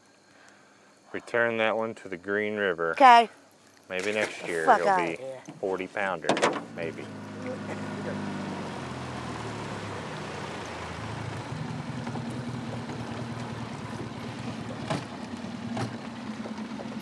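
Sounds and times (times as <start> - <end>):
small boat motor humming: 6.6 - 17.0
water wash: 6.8 - 17.0.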